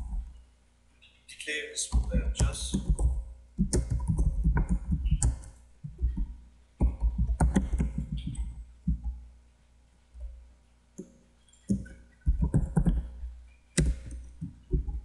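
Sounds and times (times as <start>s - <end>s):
fast keyboard typing: 1.9s - 9.1s, 11.7s - 13.2s.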